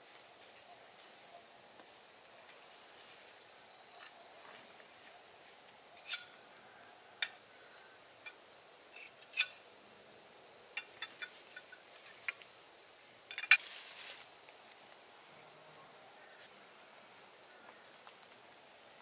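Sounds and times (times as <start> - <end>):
metal tent poles clinking: 3.0 - 4.2, 6.0 - 7.4, 8.2 - 9.6, 10.7 - 12.4, 13.3 - 14.2.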